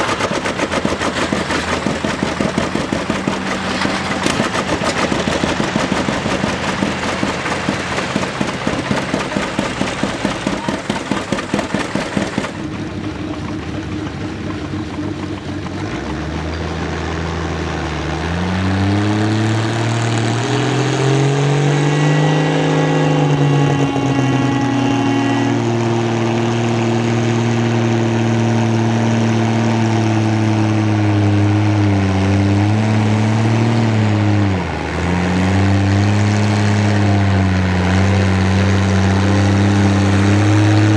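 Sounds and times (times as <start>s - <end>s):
two-cylinder engine popping: 0.0s - 16.8s
tractor engine revving under load: 0.0s - 40.9s.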